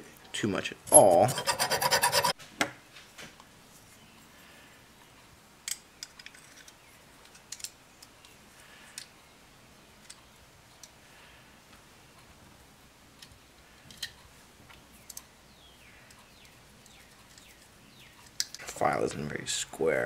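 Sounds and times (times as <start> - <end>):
hand file rasping on steel: 0.9 - 2.4.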